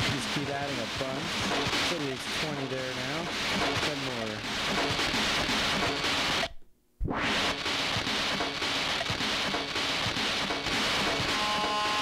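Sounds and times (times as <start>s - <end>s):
crackling glitchy electronic noise: 0.0s - 12.0s
steady held electronic tones: 11.2s - 12.0s.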